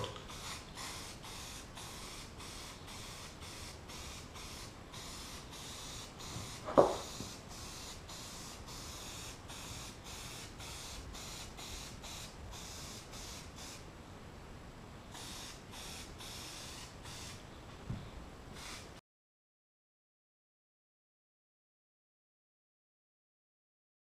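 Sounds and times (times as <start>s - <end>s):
spray paint hissing from can: 0.0s - 13.8s, 15.1s - 17.4s, 18.5s - 19.0s
sharp knock: 6.6s - 7.2s.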